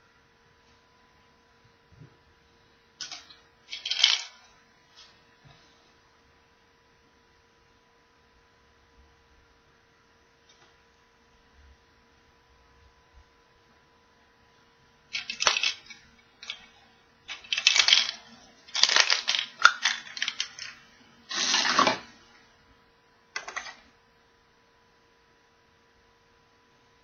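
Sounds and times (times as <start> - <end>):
plastic capsule clicking and cracking: 15.2 - 16.6, 17.3 - 20.7, 23.4 - 23.8.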